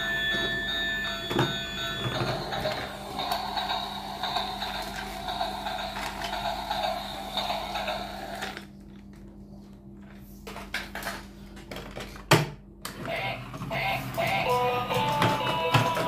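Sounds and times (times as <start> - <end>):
toy train motor whirring: 2.4 - 8.6.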